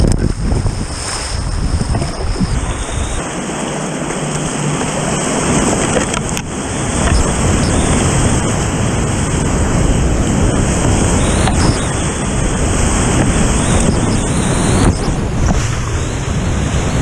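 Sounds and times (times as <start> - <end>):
whitewater rushing: 0.9 - 17.0.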